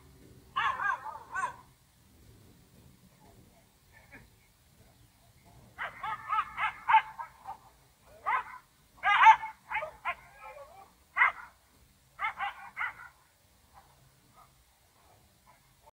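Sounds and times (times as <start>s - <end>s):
dog barking and yelping: 0.5s - 1.7s, 5.8s - 11.6s, 12.2s - 13.2s.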